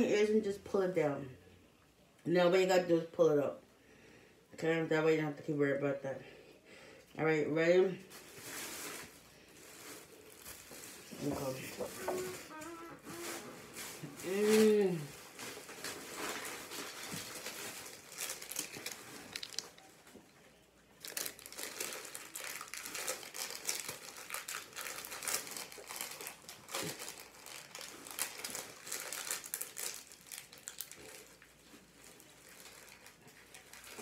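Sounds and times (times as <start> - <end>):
plastic packaging crinkling: 8.0 - 34.0.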